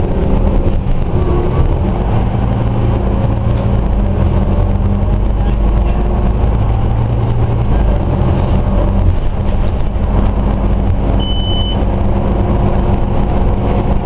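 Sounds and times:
bus diesel engine droning: 0.0s - 14.0s
short high beep: 11.2s - 11.8s.

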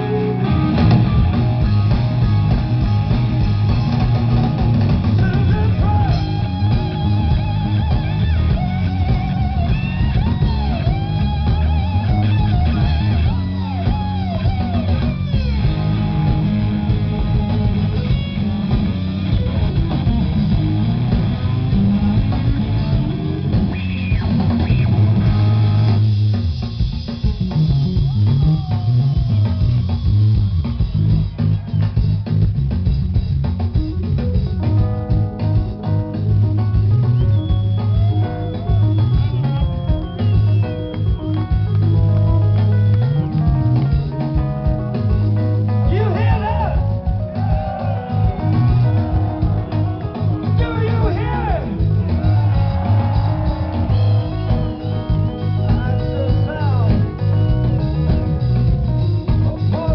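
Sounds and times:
live rock band playing: 0.0s - 59.9s.

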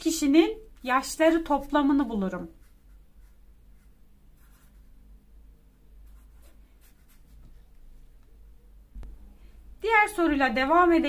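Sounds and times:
marker scratching on paper: 1.3s - 5.0s, 6.0s - 7.8s.

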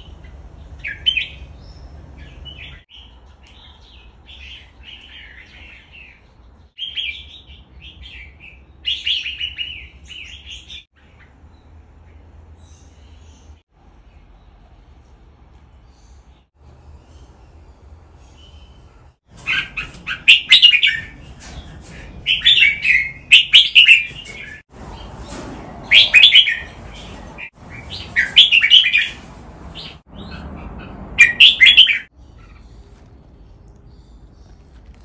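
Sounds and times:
bulbuls singing: 17.0s - 35.0s.

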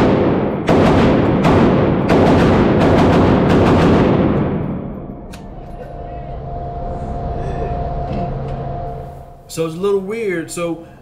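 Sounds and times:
rifle shots with echo: 0.0s - 5.1s.

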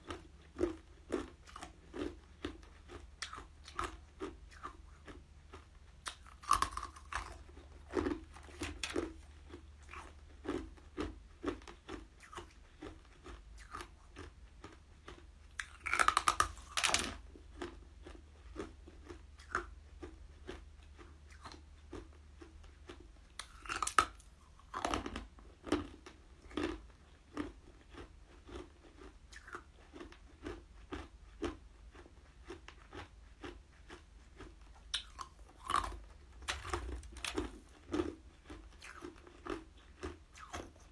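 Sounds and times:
ice crunched between teeth: 6.1s - 9.2s, 15.6s - 17.2s, 23.4s - 25.2s.

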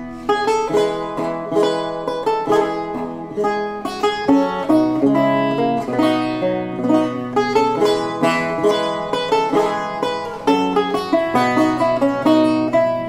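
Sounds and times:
lute bass notes: 0.0s - 13.0s
plucked lute notes: 0.0s - 13.0s.

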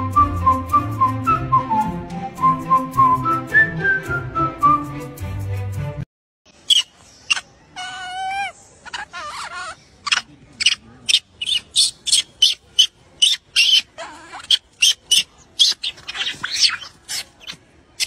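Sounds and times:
macaque squeaking and chirping: 6.6s - 18.0s.

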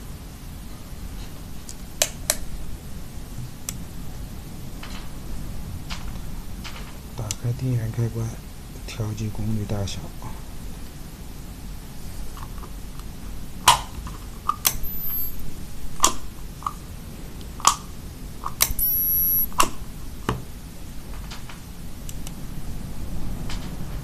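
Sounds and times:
short high-pitched tone: 14.8s - 15.4s, 18.8s - 19.5s.

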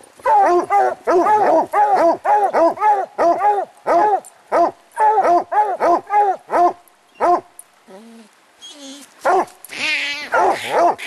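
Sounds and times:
hounds barking: 0.2s - 7.4s, 9.2s - 9.5s, 10.3s - 11.0s.

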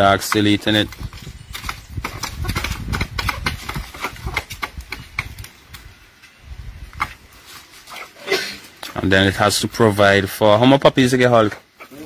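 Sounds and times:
animals pecking and crunching rice: 0.0s - 5.8s.

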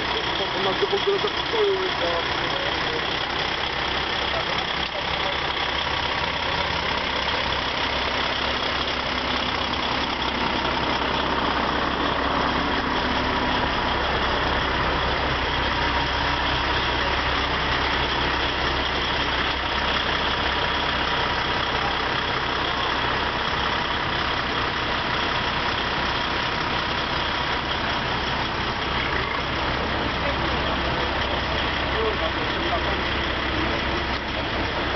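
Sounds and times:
truck diesel engines idling: 0.0s - 34.9s.

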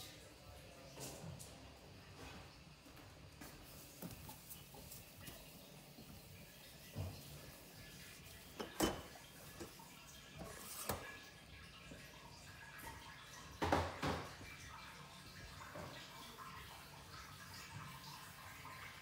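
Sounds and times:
kitchen items knocking and clattering: 8.5s - 9.8s, 13.5s - 14.4s.

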